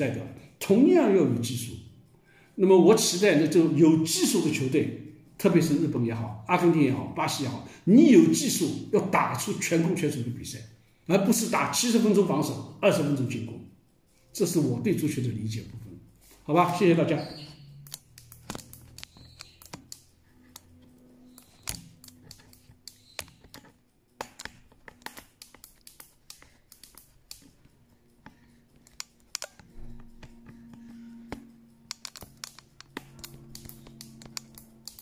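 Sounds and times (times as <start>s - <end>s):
fingers typing: 17.1s - 35.0s.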